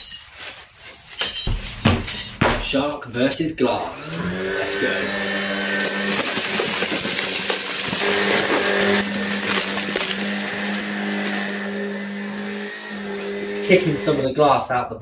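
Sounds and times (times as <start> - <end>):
broken glass clattering: 0.0 - 3.0
stick vacuum running: 3.8 - 14.3.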